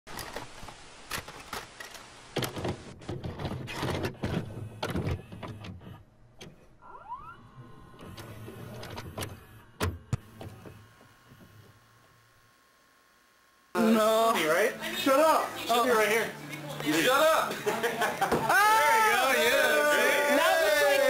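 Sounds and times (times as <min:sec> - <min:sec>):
motor whirring and humming: 0:04.2 - 0:13.8.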